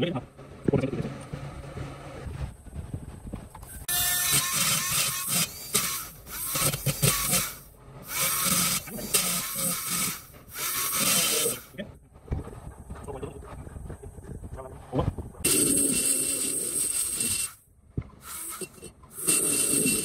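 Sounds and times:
die grinder grinding metal: 3.8 - 11.7, 15.5 - 17.6, 18.2 - 20.0.

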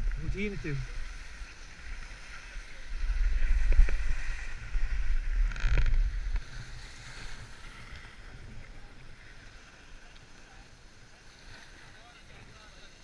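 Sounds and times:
skis scraping over snow: 0.0 - 13.0.

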